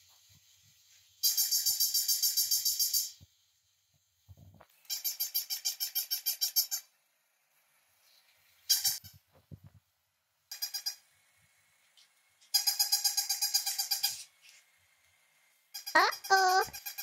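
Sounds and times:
electronic toy puppy yapping: 4.9s - 6.9s, 10.5s - 11.0s, 12.5s - 14.3s, 15.7s - 17.0s.

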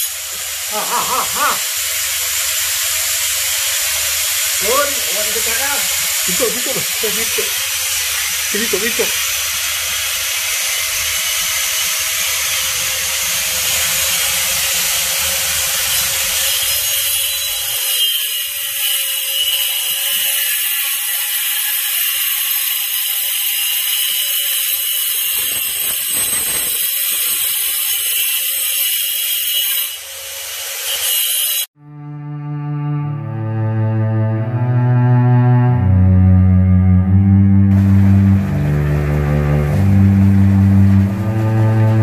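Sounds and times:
angle grinder whining: 0.0s - 31.7s.

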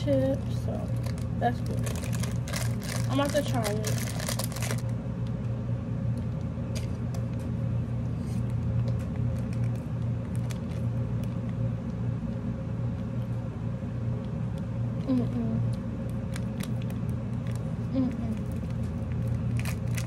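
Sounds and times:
steady low hum: 0.0s - 20.0s
wrapper crinkling: 0.7s - 4.9s, 8.8s - 11.6s, 16.2s - 20.0s
plastic wrapper tearing: 0.9s - 4.9s, 9.1s - 11.4s, 16.2s - 17.7s, 18.3s - 20.0s.

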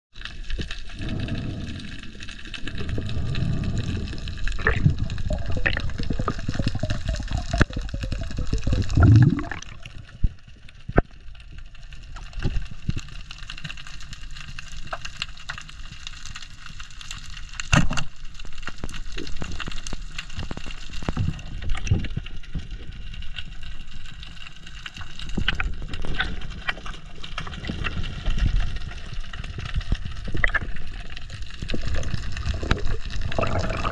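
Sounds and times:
underwater water rushing: 0.2s - 15.9s, 24.5s - 33.9s.

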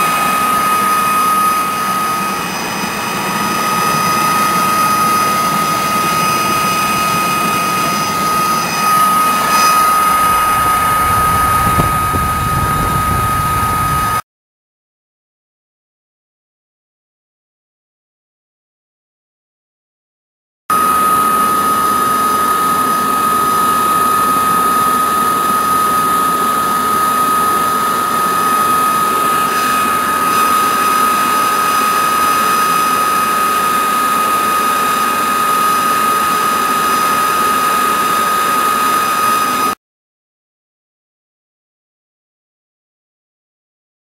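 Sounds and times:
air blower roaring with whine: 0.0s - 14.2s, 20.7s - 39.8s.

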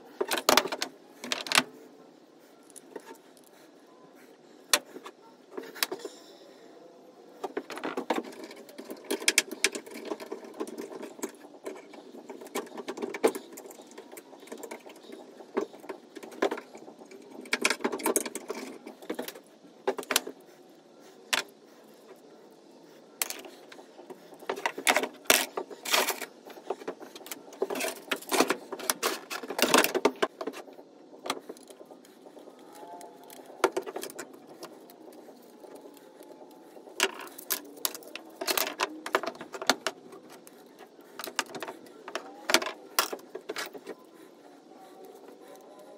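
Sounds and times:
metal parts clinking and clattering: 32.6s - 44.0s.

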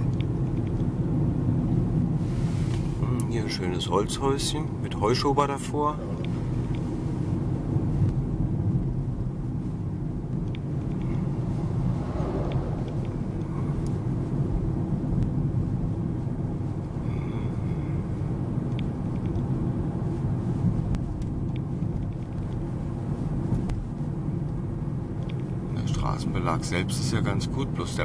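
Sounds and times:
car road and engine rumble: 0.0s - 28.0s
lorry passing: 10.7s - 14.6s.

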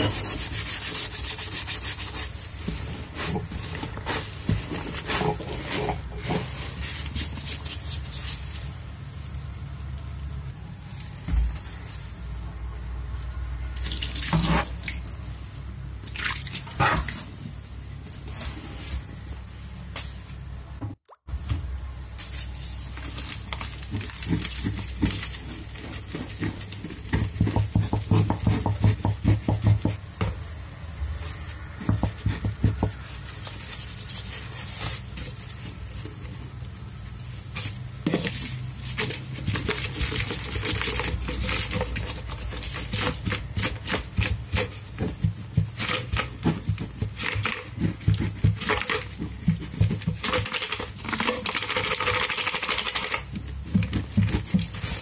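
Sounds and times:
plastic canister squeezed and shaken: 0.0s - 8.9s, 22.2s - 30.0s, 37.2s - 55.0s
powder pattering onto sponges: 22.4s - 30.0s.

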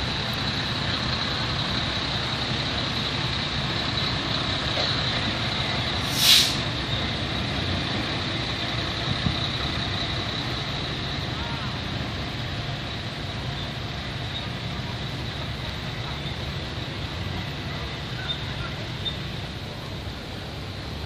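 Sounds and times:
diesel truck engine running: 0.0s - 21.0s
air brake hiss: 6.0s - 6.6s.

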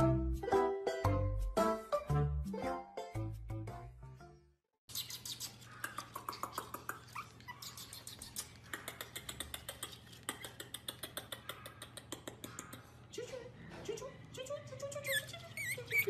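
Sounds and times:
puppy whimpering: 6.4s - 8.7s, 15.0s - 16.0s.

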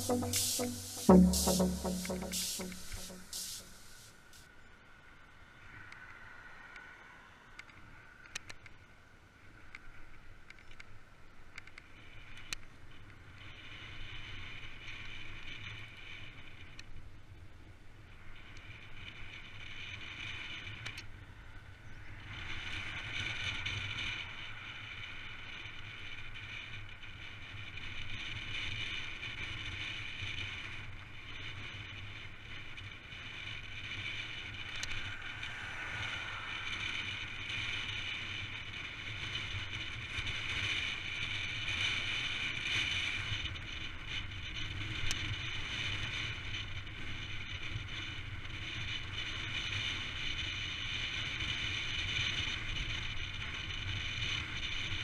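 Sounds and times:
wind rush: 34.0s - 39.1s
bike tyre roar: 34.0s - 39.3s.

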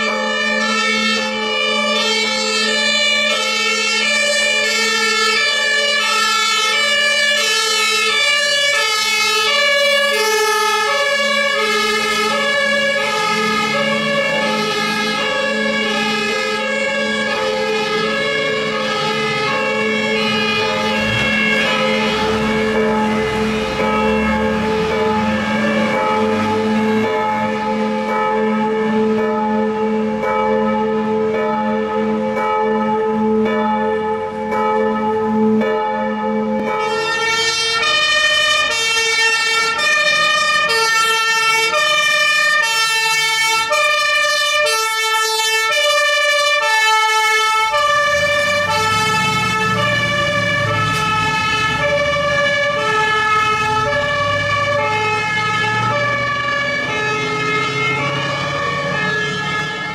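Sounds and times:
bells ringing: 0.0s - 4.0s, 12.3s - 37.3s
truck engine: 0.0s - 32.5s, 36.5s - 59.9s
two-tone fire engine siren: 0.0s - 59.9s.

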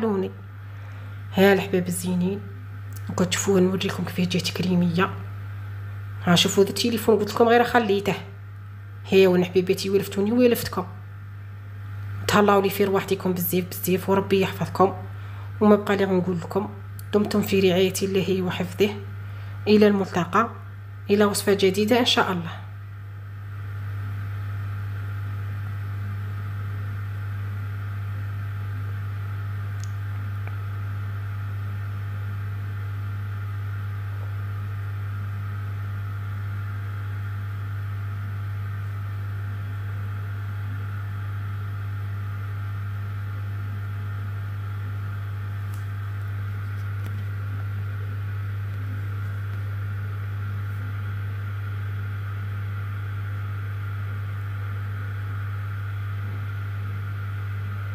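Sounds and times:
refrigerator humming: 0.0s - 57.9s.

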